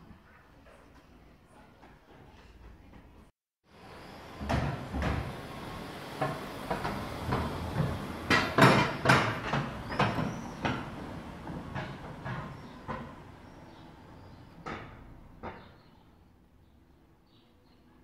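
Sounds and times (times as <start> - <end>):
car engine rumble: 3.8 - 16.0
irregular knocks and clacks: 4.4 - 15.9.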